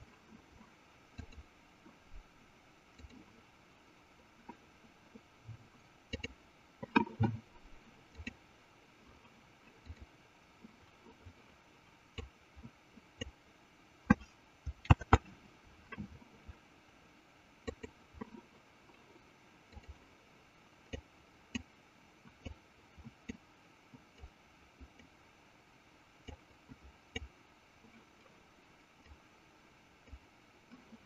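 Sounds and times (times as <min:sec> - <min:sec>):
computer mouse clicks: 0:00.6 - 0:02.3, 0:02.9 - 0:05.2, 0:06.1 - 0:08.4, 0:09.2 - 0:11.5, 0:12.1 - 0:13.4, 0:14.1 - 0:16.6, 0:17.6 - 0:19.0, 0:19.7 - 0:20.1, 0:20.8 - 0:25.2, 0:26.2 - 0:28.3, 0:29.0 - 0:29.3, 0:30.0 - 0:31.0.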